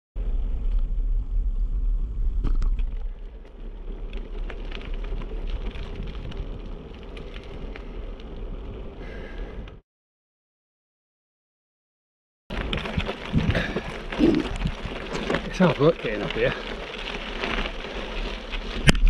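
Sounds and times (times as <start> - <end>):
bike clicks and rattles: 2.4 - 8.6, 12.5 - 19.0
wind buffeting microphone: 12.8 - 15.1.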